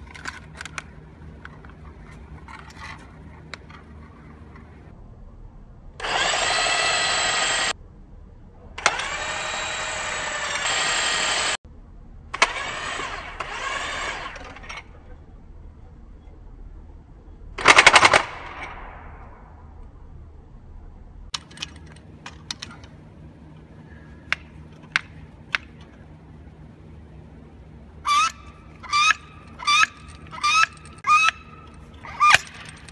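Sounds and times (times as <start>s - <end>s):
power driver motor whine: 6.0s - 7.8s, 8.8s - 11.6s.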